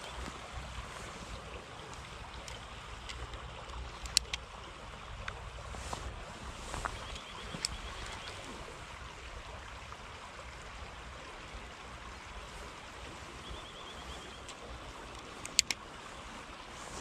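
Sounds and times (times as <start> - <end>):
stream flowing over gravel: 0.0 - 17.0
faint rapid ticks: 1.8 - 5.4.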